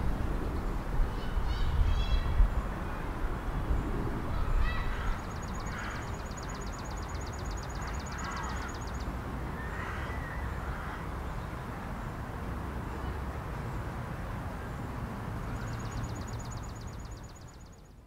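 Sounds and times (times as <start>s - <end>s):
wind rumble on microphone: 0.0s - 6.4s
faint distant bird calls: 0.5s - 11.6s, 15.4s - 18.0s.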